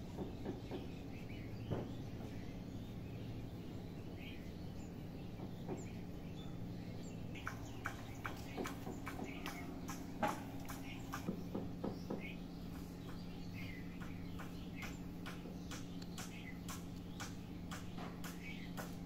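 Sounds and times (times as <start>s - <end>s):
small birds chirping: 0.0s - 19.0s
steady low hum: 0.0s - 19.0s.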